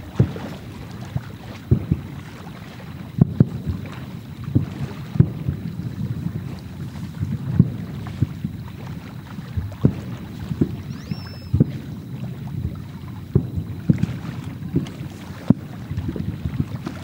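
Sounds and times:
firework booms: 0:00.0 - 0:00.7, 0:01.7 - 0:02.3, 0:03.2 - 0:17.0
wind on microphone: 0:00.0 - 0:17.0
high firework whistle: 0:10.6 - 0:12.0.

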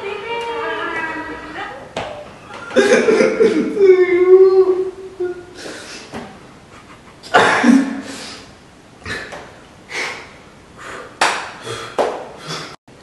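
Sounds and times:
man laughing: 0:02.7 - 0:04.0, 0:06.6 - 0:08.0.

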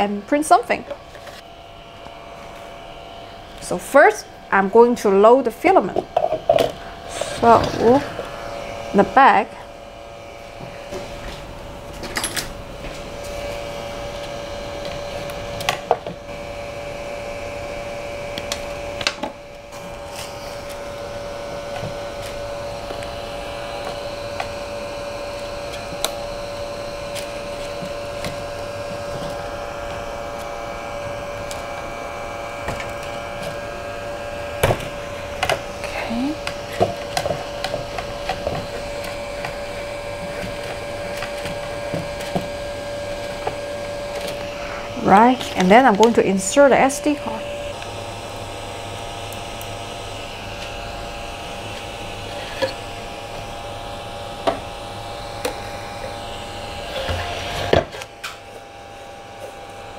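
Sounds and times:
electrical hum of printer: 0:00.0 - 0:59.9.

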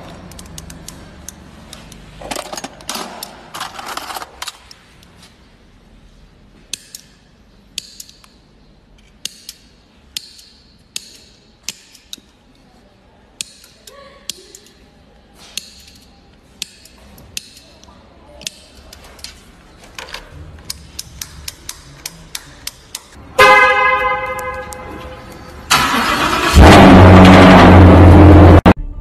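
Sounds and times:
hand tool clicking on metal: 0:06.7 - 0:07.2, 0:07.8 - 0:08.4, 0:09.0 - 0:12.3, 0:13.4 - 0:14.8, 0:15.6 - 0:19.0, 0:20.6 - 0:23.2.

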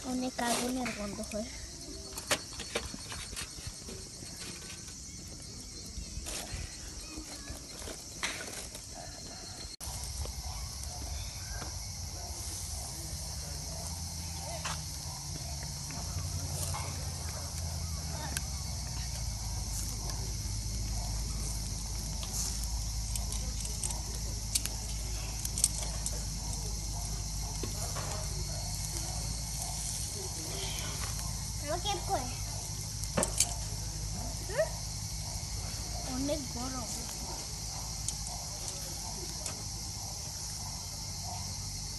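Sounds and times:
insects droning: 0:00.0 - 0:41.9.

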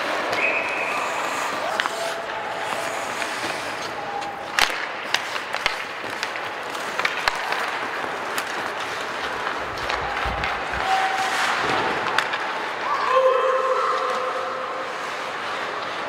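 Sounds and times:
arena spectator noise: 0:00.0 - 0:05.5, 0:08.9 - 0:16.0
hockey sticks and puck clacking: 0:00.0 - 0:16.0.

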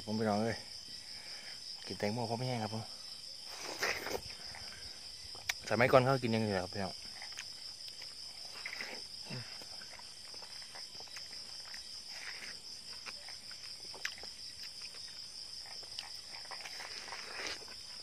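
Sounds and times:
night insects chirring: 0:00.0 - 0:18.0
man chewing watermelon: 0:03.4 - 0:05.7, 0:06.4 - 0:18.0.

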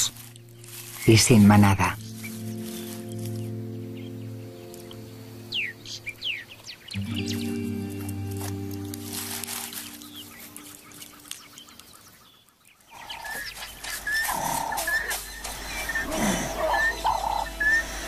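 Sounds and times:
background music: 0:00.0 - 0:11.8, 0:13.5 - 0:18.0
whining calls sliding down: 0:13.0 - 0:18.0.

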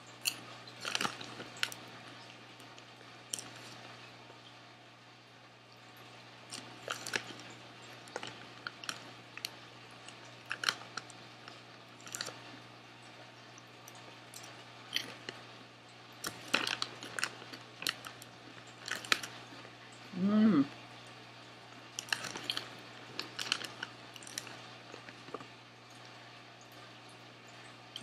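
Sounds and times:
person chewing popcorn: 0:00.2 - 0:04.0, 0:06.5 - 0:12.6, 0:13.8 - 0:15.4, 0:16.2 - 0:19.7, 0:22.0 - 0:25.5
crinkle of foil snack bag: 0:00.3 - 0:01.8, 0:06.6 - 0:09.6, 0:16.2 - 0:19.5, 0:22.0 - 0:25.4.

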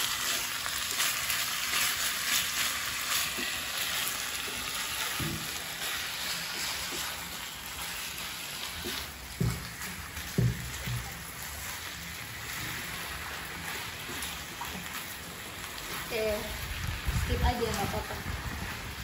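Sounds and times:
meat sizzling in a frying pan: 0:00.0 - 0:19.0
spatula scraping a pan: 0:00.2 - 0:15.2.

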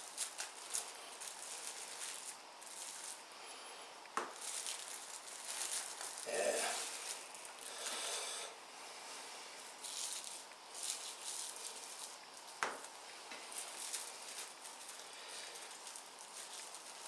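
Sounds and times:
foil crinkling and rustling: 0:00.0 - 0:03.3, 0:04.2 - 0:08.2, 0:09.6 - 0:17.0.

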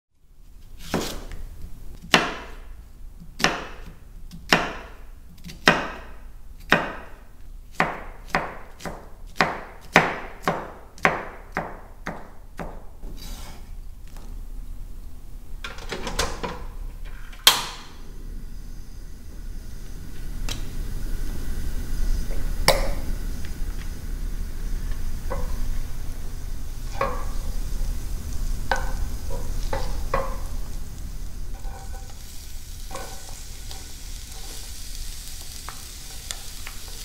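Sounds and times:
knife chopping on wooden board: 0:00.9 - 0:01.3, 0:02.1 - 0:02.6, 0:03.4 - 0:06.1, 0:06.7 - 0:07.1, 0:07.8 - 0:12.8.

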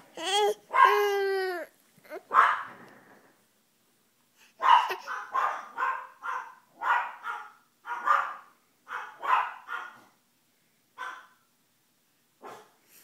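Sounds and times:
small dogs barking: 0:00.7 - 0:01.2, 0:02.2 - 0:02.8, 0:04.6 - 0:10.2, 0:11.0 - 0:11.4, 0:12.4 - 0:12.8.

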